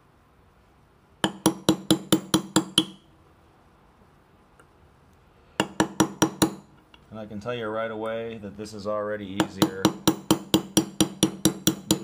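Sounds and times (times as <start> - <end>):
hammer tapping metal tool: 1.2 - 3.1, 5.6 - 6.8, 9.4 - 12.0.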